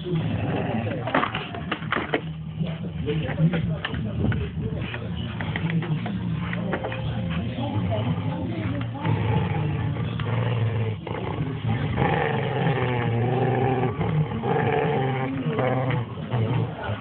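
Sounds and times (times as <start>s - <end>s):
small dog growling: 0.0s - 1.3s, 7.8s - 17.0s.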